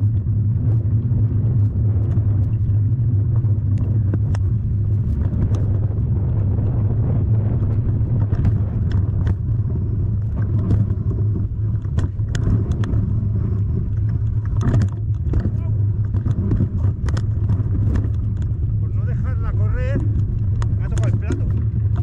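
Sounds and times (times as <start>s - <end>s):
steady low rumble: 0.0s - 22.0s
light clicks and rattles: 3.4s - 6.0s, 7.5s - 9.6s, 10.2s - 22.0s.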